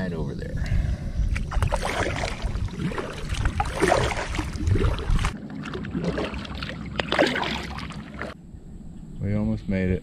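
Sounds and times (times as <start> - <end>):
paddle splashing in water: 1.5 - 8.4.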